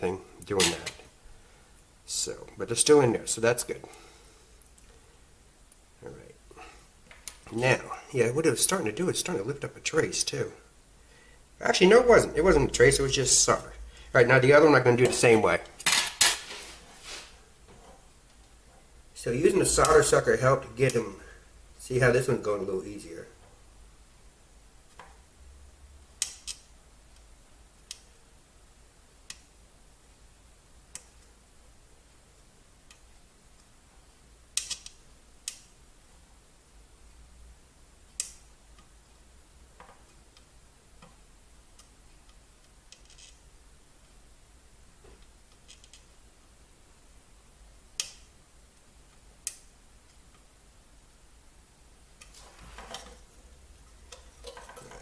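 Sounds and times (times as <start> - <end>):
scraping rustle of circuit board: 16.3 - 17.4, 52.3 - 53.3
soldering iron tip clicking on pins: 26.2 - 28.1, 38.1 - 38.9, 47.9 - 48.3
sharp clicks: 48.0 - 48.3.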